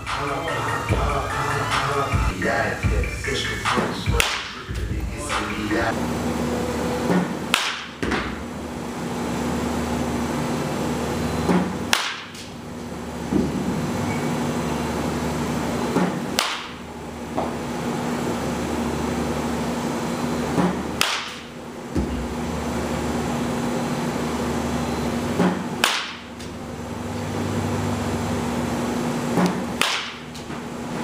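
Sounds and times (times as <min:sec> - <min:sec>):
steady hum: 0:00.0 - 0:31.0
bat cracking ball: 0:04.2 - 0:04.6, 0:07.1 - 0:08.5, 0:11.5 - 0:12.6, 0:15.9 - 0:17.6, 0:20.5 - 0:22.4, 0:25.4 - 0:26.6, 0:29.3 - 0:30.7.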